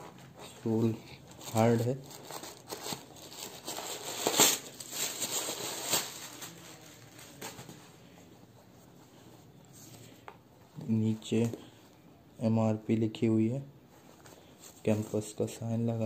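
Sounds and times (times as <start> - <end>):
tissue paper rustling: 0.2 - 8.9.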